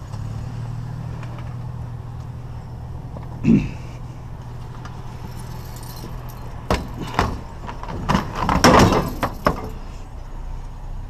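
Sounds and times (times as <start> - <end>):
hard objects clattering: 5.2 - 9.8
sharp knocks: 6.6 - 9.8.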